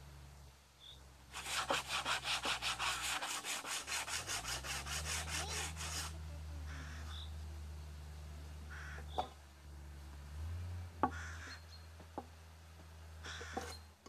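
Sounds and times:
hand saw cutting wood: 1.3s - 6.2s.

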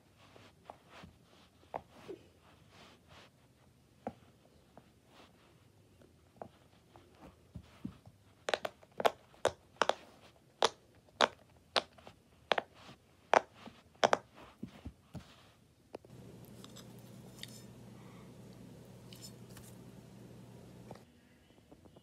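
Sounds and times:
low steady hum: 16.0s - 22.0s.

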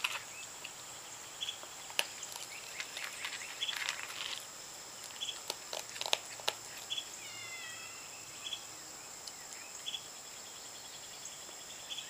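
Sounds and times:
raccoon crunching kibble: 0.0s - 0.8s, 1.5s - 7.0s
insect chorus: 0.0s - 12.0s
bird warble: 2.2s - 4.4s
bird chirps: 6.3s - 12.0s.

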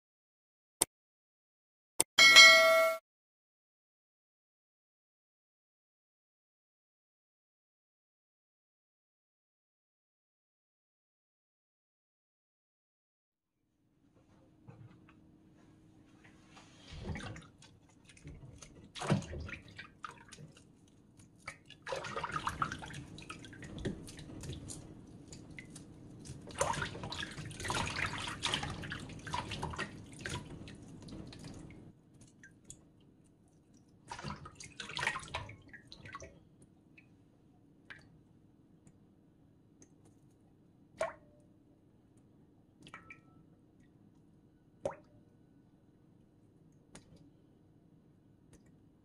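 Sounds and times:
water splashing and dripping: 17.0s - 37.1s, 44.8s - 45.1s.

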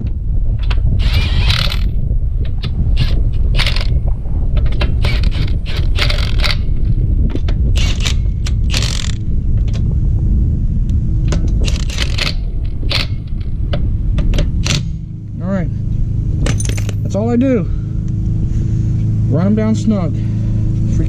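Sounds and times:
steady low rumble: 0.0s - 21.0s
impact wrench bursts: 5.0s - 6.6s, 7.8s - 9.2s
socket clinking on nuts: 16.4s - 17.2s.

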